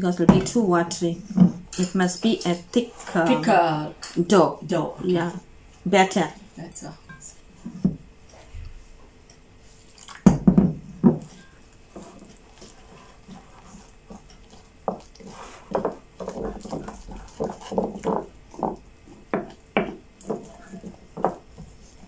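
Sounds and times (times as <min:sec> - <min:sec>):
wooden spoon stirring batter: 0:05.0 - 0:22.0.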